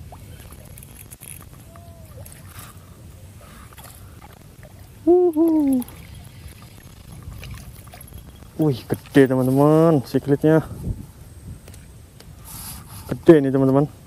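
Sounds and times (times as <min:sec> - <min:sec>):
man hooting: 0:05.0 - 0:05.9.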